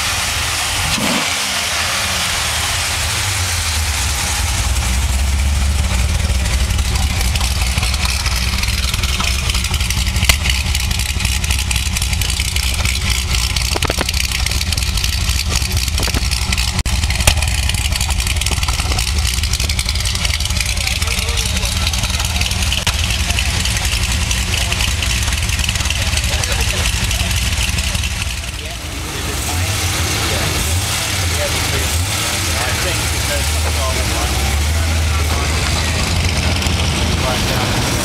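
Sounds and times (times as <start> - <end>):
car engine idling: 0.0 - 38.0.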